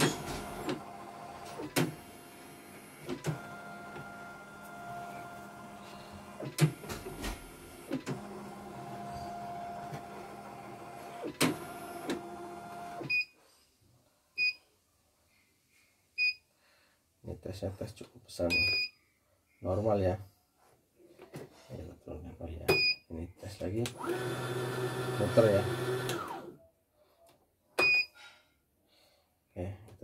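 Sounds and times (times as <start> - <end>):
embroidery machine motor whir: 0.0 - 13.0, 23.9 - 26.5.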